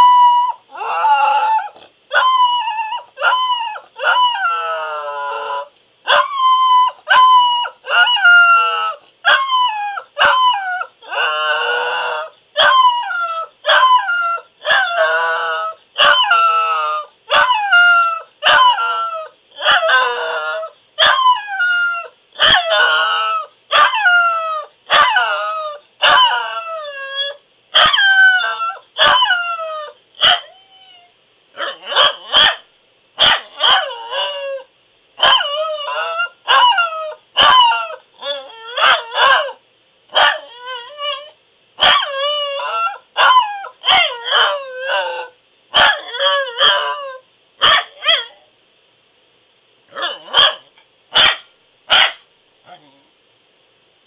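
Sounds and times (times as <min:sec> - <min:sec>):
dog howling: 0:00.0 - 0:32.6, 0:33.2 - 0:39.6, 0:40.2 - 0:48.5.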